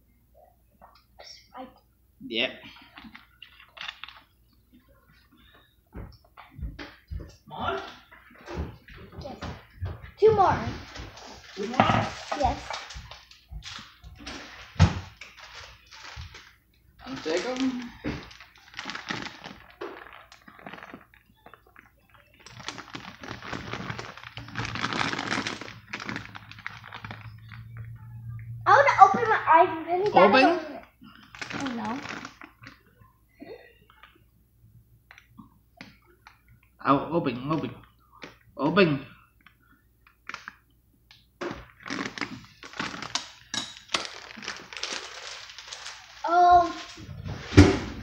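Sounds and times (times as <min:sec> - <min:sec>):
plastic bag crinkling: 0:02.8 - 0:04.3, 0:10.8 - 0:28.0, 0:31.0 - 0:32.8, 0:41.5 - 0:47.0
plastic crackling and rustling: 0:02.8 - 0:05.2, 0:10.4 - 0:28.2, 0:30.3 - 0:33.0, 0:39.4 - 0:40.6, 0:41.4 - 0:48.0.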